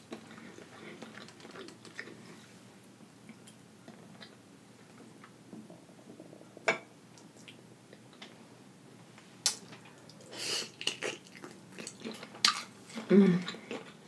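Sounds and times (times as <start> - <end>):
wet smack and chewing: 0.1 - 2.2, 9.4 - 14.0.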